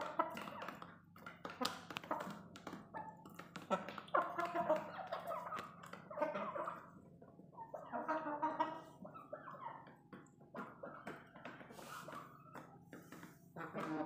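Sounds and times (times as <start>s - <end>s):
chickens clucking: 0.0s - 14.0s.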